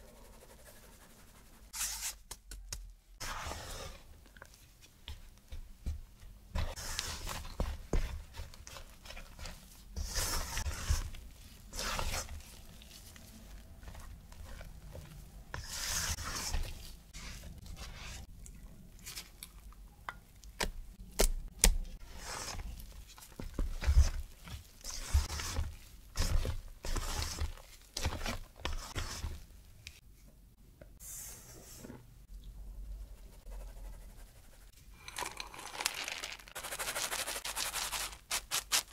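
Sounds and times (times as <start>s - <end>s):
spatula scraping batter in bowl: 6.7s - 18.3s, 23.5s - 29.4s.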